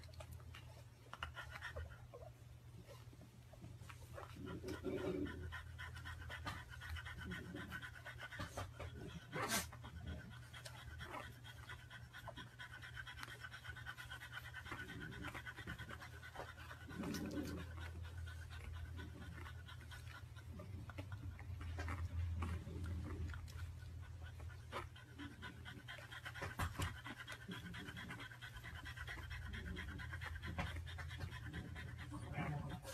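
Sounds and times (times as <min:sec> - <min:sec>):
dog panting: 0:00.0 - 0:32.9.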